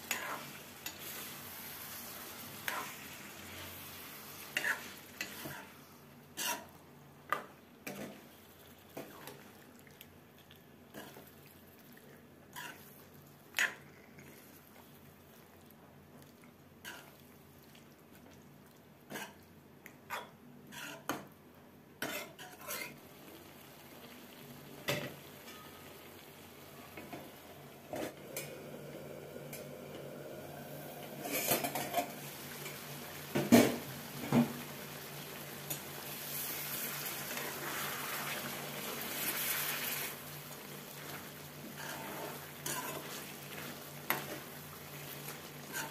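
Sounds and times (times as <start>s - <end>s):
metal spatula scraping a metal pan: 4.6s - 5.8s, 6.4s - 6.7s, 20.7s - 21.1s, 22.0s - 23.0s, 41.8s - 43.2s, 45.6s - 45.9s.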